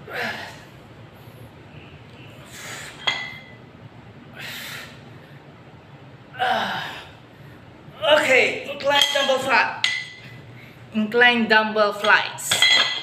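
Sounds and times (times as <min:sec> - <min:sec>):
metal dumbbells clinking: 0:03.0 - 0:03.6, 0:08.9 - 0:10.3, 0:12.0 - 0:13.0.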